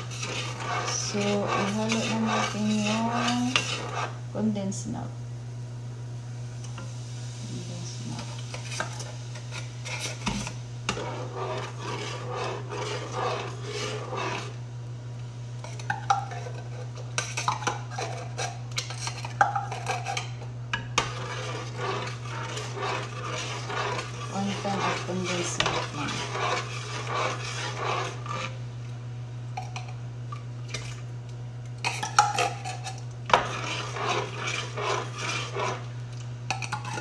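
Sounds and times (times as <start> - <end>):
metal utensil scraping a can: 0.0 - 4.2, 8.5 - 14.6, 15.6 - 20.4, 21.0 - 28.6, 31.8 - 35.9.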